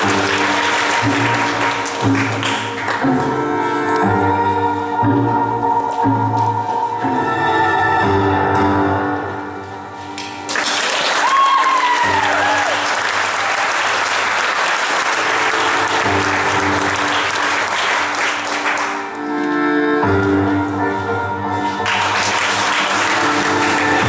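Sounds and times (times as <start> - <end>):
audience applauding: 0.0 - 3.4, 10.2 - 19.1, 21.8 - 24.0
performance music: 0.0 - 24.0
whistle or whoop: 11.2 - 12.8.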